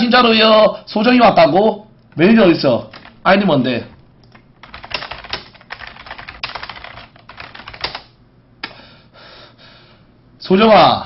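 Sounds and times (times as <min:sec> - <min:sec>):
keyboard typing: 0:02.9 - 0:03.2, 0:04.2 - 0:08.1.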